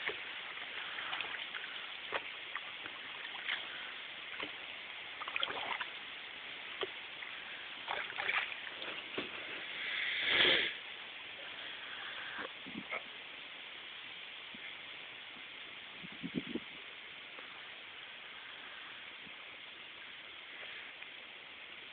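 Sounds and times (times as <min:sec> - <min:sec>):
paddle splashes and drips: 0:00.0 - 0:09.8
swish of water: 0:00.0 - 0:10.8.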